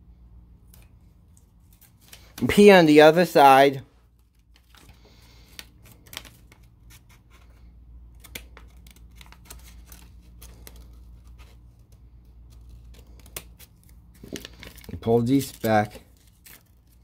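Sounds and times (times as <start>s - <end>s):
paper crinkling: 4.0s - 7.6s, 8.2s - 17.0s.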